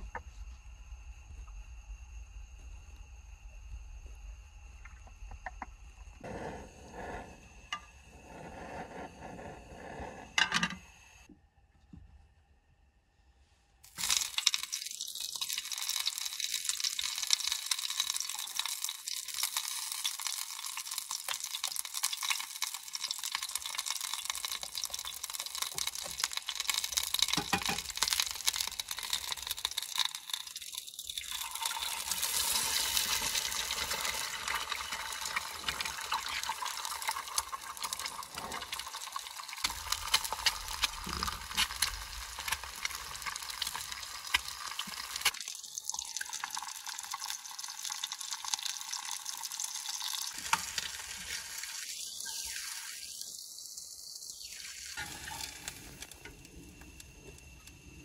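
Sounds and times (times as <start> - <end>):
pan sizzling: 13.9 - 57.6.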